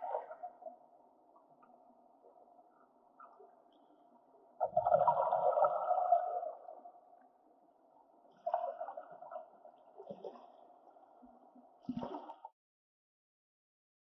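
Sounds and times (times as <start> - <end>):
muffled underwater gurgling: 0.0 - 7.2.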